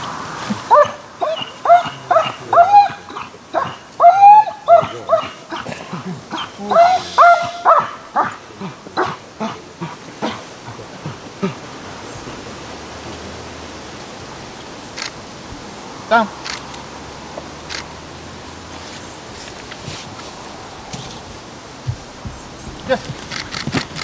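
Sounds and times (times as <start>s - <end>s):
dog yelping barks: 0.7s - 5.7s, 6.3s - 8.4s.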